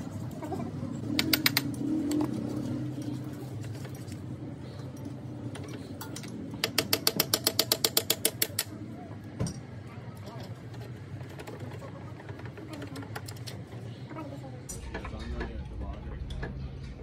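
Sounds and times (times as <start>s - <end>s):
ratchet wrench clicking: 6.6s - 8.7s.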